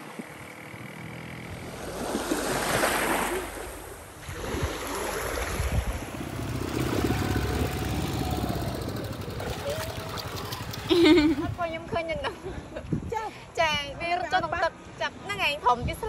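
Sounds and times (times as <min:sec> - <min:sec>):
small waves washing: 0:01.5 - 0:11.8
wind rumbling on microphone: 0:03.7 - 0:14.0.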